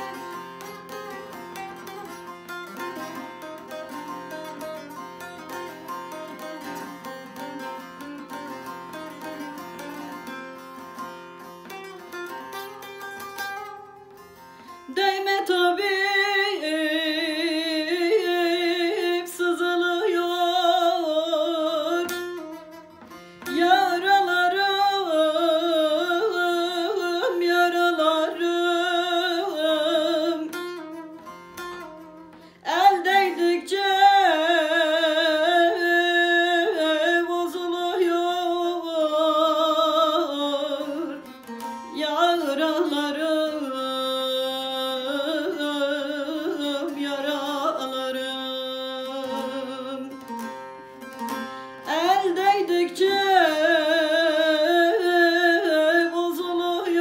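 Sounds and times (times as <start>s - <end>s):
plucked long-necked lute melody: 0.0s - 57.0s
woman singing with vibrato: 14.9s - 22.5s, 23.5s - 30.6s, 32.6s - 50.3s, 51.8s - 57.0s.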